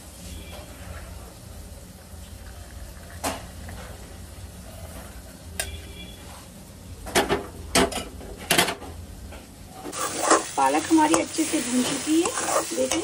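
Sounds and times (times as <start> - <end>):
spinach sizzling: 9.9 - 13.0.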